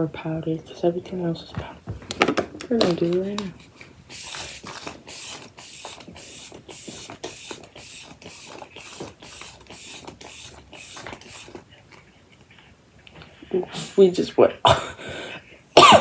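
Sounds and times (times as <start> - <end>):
spray bottle hissing spritzes: 4.1 - 11.6.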